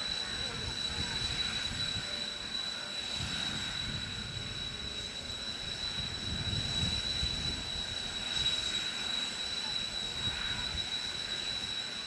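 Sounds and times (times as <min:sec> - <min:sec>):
jet engines idling whine: 0:00.0 - 0:12.0
wind rumble on microphone: 0:03.1 - 0:05.0, 0:05.7 - 0:08.6.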